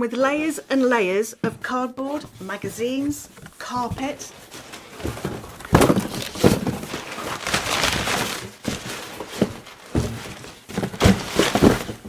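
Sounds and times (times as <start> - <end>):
cardboard scraping and rustling: 1.6 - 12.0
cardboard thuds and knocks: 3.5 - 12.0.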